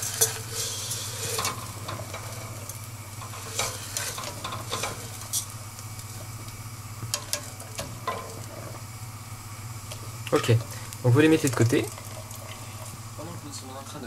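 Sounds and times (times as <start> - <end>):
skimmer stirring boiling water: 0.0 - 14.0.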